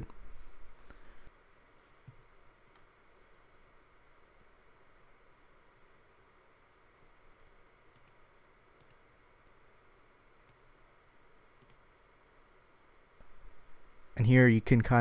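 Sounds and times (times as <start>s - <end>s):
computer mouse clicks: 7.9s - 8.2s, 8.8s - 9.6s, 10.4s - 10.7s, 11.6s - 11.9s.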